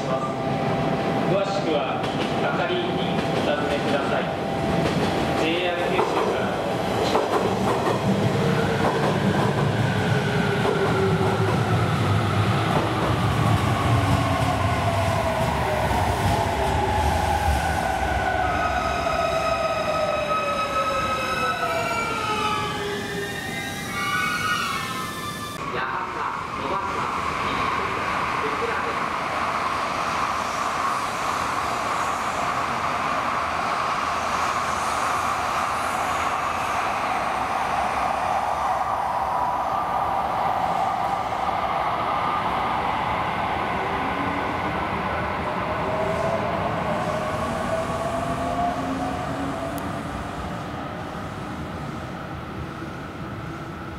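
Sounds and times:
train passing at speed: 0.0 - 53.9
train wheel rumble on rails: 1.9 - 18.5.

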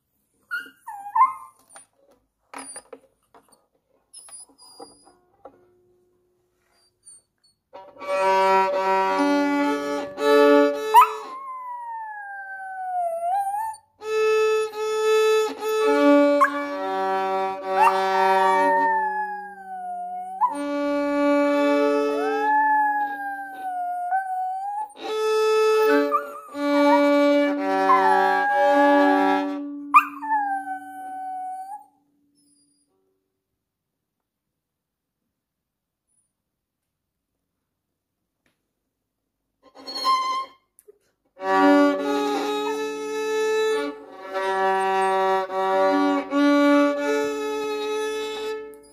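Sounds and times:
violin playing held notes: 7.8 - 11.2, 14.0 - 19.6, 20.6 - 23.6, 25.0 - 29.8, 41.4 - 48.8
dog howling: 11.0 - 13.8, 17.8 - 20.7, 21.7 - 25.1, 25.8 - 31.9.

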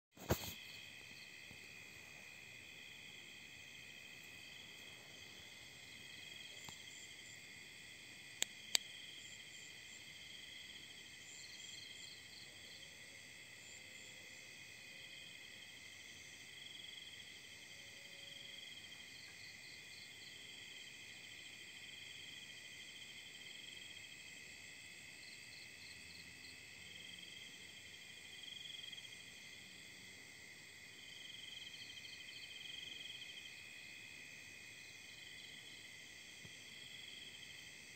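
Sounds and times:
crickets trilling: 0.2 - 12.9.

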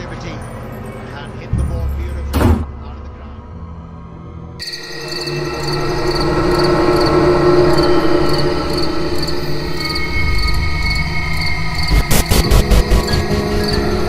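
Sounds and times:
low steady drone: 2.9 - 14.0
crickets chirping: 4.6 - 14.0.

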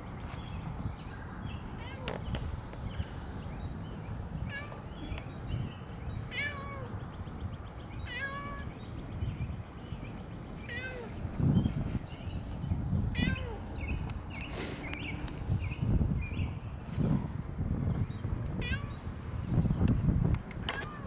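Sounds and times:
cat meowing: 6.3 - 6.9, 8.0 - 8.7, 10.7 - 11.2, 13.2 - 13.6, 18.6 - 19.0.

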